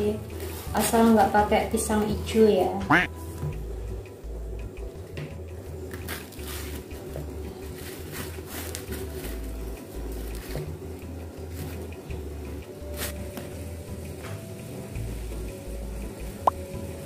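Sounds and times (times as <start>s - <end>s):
plastic bag crackling: 6.0s - 10.6s.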